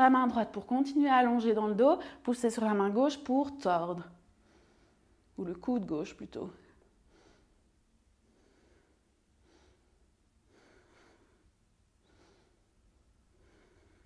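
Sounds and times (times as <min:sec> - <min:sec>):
woman breathing softly: 0:04.3 - 0:05.3, 0:06.8 - 0:14.0.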